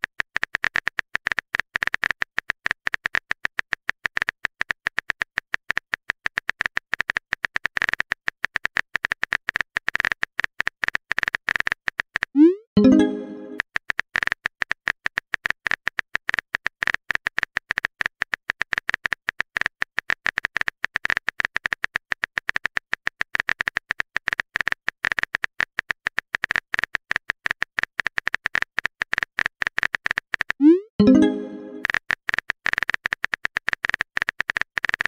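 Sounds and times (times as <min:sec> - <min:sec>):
keyboard typing clicks: 0:12.4 - 0:13.6, 0:30.4 - 0:31.9
rising notification tone: 0:12.4 - 0:13.6, 0:30.6 - 0:31.9.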